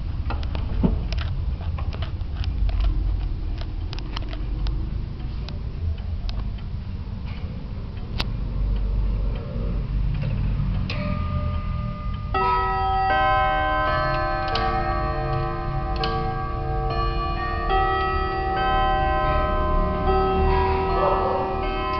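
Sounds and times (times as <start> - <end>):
wall clock ticking: 3.6 - 21.9
clock chime rods ringing: 10.9 - 21.9.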